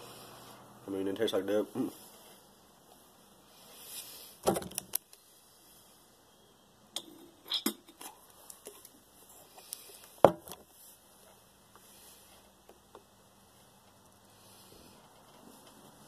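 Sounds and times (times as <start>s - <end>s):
person spitting into plastic bottle: 7.0s - 8.2s.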